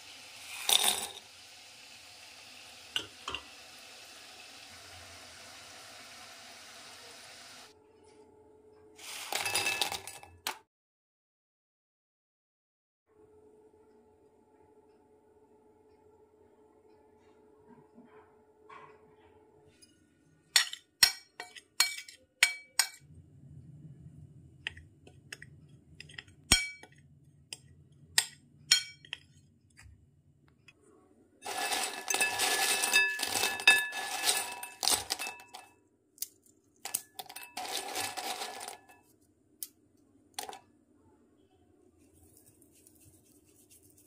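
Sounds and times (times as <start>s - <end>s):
snacks clattering onto ceramic plate: 31.4s - 39.0s.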